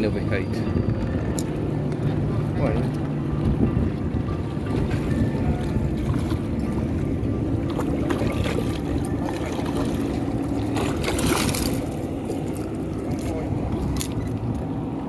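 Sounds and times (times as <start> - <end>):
steady low rumble: 0.0 - 15.0
fish thrashing and splashing: 7.6 - 14.3.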